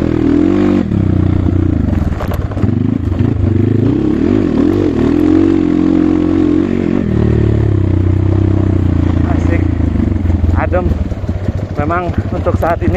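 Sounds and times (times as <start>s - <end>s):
dirt bike engine revving: 0.0s - 12.9s
sharp clatters: 1.5s - 3.4s.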